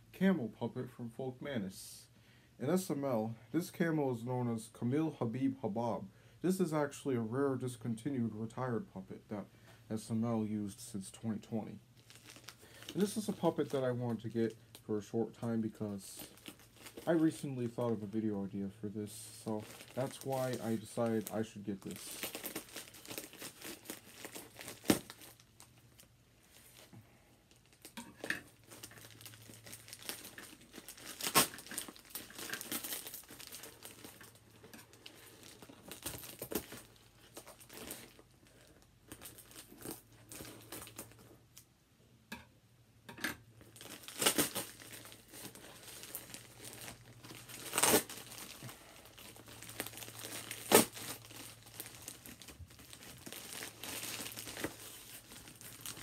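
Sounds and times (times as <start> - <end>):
plastic bag crinkling: 11.4 - 41.4, 43.6 - 56.0.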